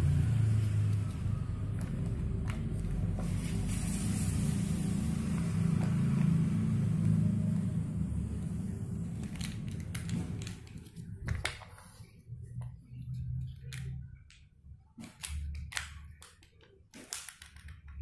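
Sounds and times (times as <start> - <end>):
low rumble with hiss: 0.0 - 16.4
plastic building blocks clicking: 13.5 - 18.0.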